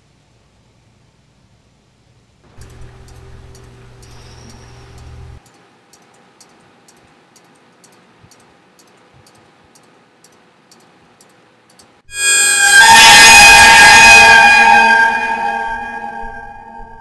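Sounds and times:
faint steady hum: 0.0s - 12.7s
soft regular ticking: 2.5s - 12.0s.

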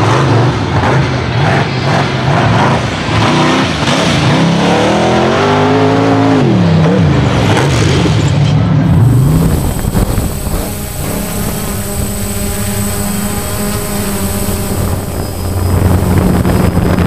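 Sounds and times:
buggy engine revving: 0.0s - 17.0s.

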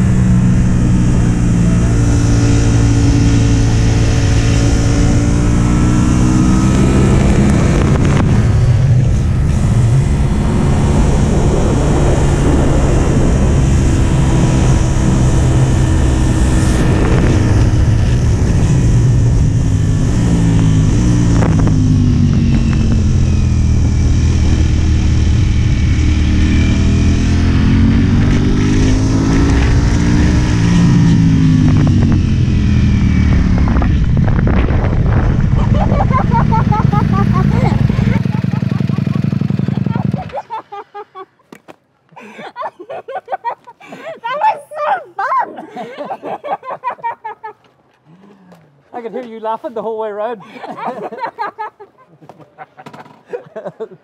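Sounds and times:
wind noise: 0.0s - 40.4s
motorcycle engine revving: 0.0s - 41.0s.

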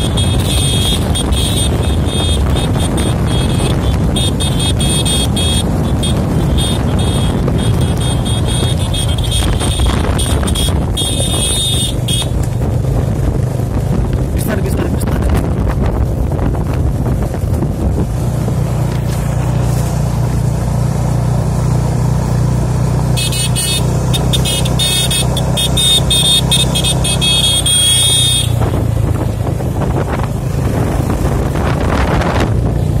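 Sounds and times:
motorcycle horn short beeps: 0.0s - 12.4s, 23.1s - 28.8s
motorcycle engines droning: 0.0s - 33.0s
road noise: 0.0s - 33.0s.

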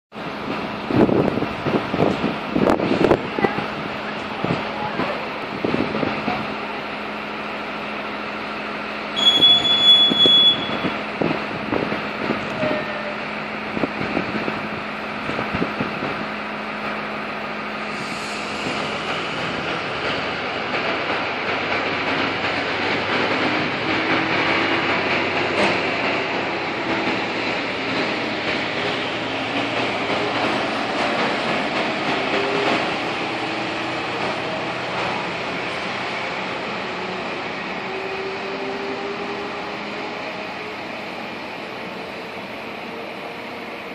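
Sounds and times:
train wheels rumbling on rails: 0.1s - 43.9s
high train whistle blast: 9.2s - 11.0s, 12.5s - 13.2s.

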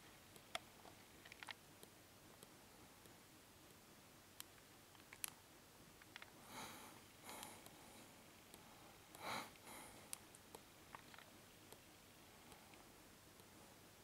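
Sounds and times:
faint ticks: 8.5s - 13.6s.

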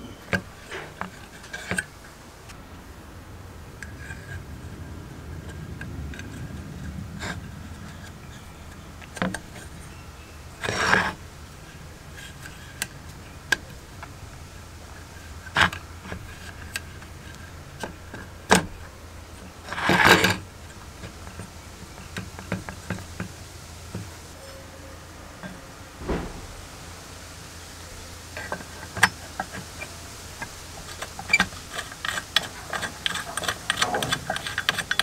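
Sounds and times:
scraping rustles: 3.8s - 35.0s
sharp clicks and knocks: 26.0s - 26.9s.

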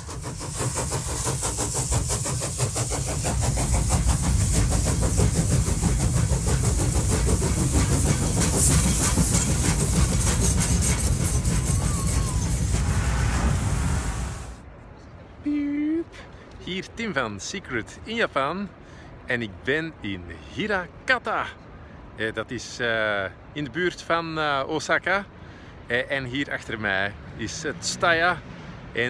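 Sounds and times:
train running at speed: 0.0s - 14.8s, 18.7s - 22.2s, 23.3s - 24.0s, 24.9s - 29.0s.

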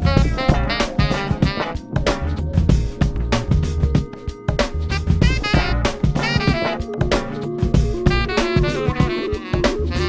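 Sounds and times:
pitched instrument notes: 0.0s - 2.2s, 4.9s - 10.0s
drum kit beat: 0.0s - 10.0s.

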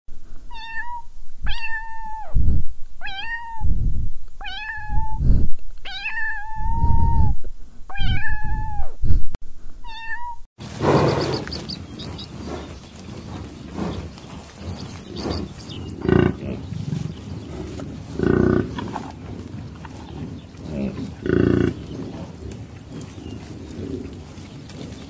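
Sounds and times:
cat meowing: 0.5s - 2.3s, 3.0s - 3.6s, 4.4s - 5.2s, 5.8s - 7.3s, 7.9s - 8.9s, 9.8s - 10.4s
dull low thumps: 2.3s - 9.9s
rushing outdoor noise: 10.6s - 25.0s.

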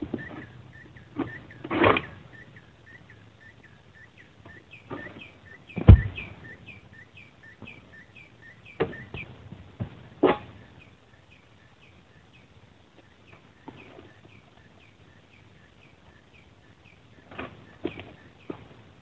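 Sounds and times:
small bird chirping: 0.0s - 9.4s, 10.0s - 18.7s
heavy thud on ground: 5.8s - 6.4s.

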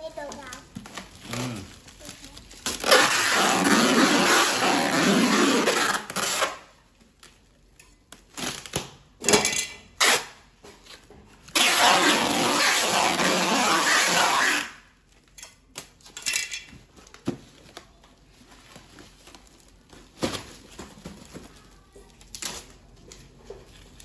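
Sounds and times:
plastic wrap rustling: 0.0s - 9.1s, 10.1s - 24.0s
packing tape screeching off roll: 1.0s - 6.7s, 10.0s - 10.4s, 11.5s - 14.9s.

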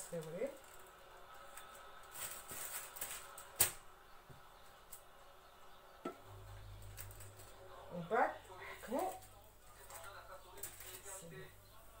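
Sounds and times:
low steady hum: 0.0s - 12.0s
paper rustling: 0.3s - 3.8s, 9.0s - 11.2s.

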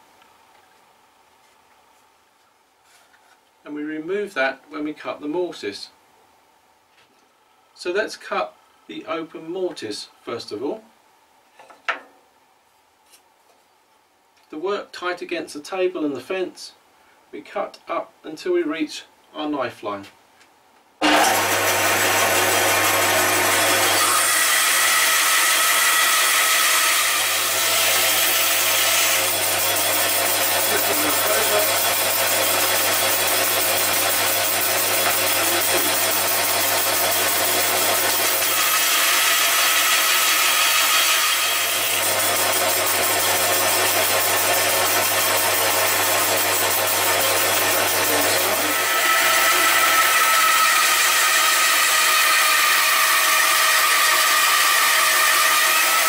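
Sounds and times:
band saw cutting wood: 21.0s - 56.0s.

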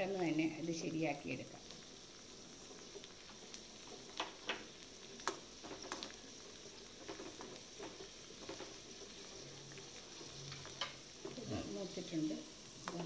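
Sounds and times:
faint steady sizzle: 0.0s - 13.0s
steel spoon stirring in pan: 1.7s - 13.0s.

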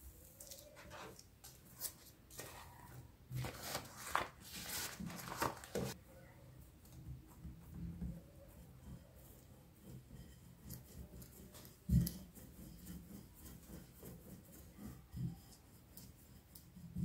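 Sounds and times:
plastic film crinkling: 3.3s - 6.0s.

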